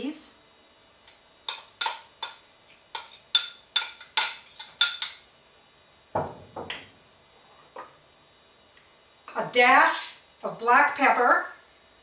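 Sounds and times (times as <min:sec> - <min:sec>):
dull knock: 0:06.2 - 0:06.7.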